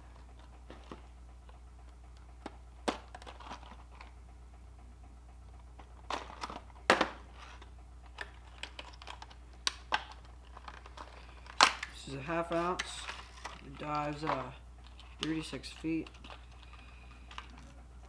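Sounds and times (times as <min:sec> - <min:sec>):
low hum: 0:00.0 - 0:18.0
plastic snapping: 0:08.1 - 0:13.6
plastic packaging crackling: 0:08.2 - 0:17.6.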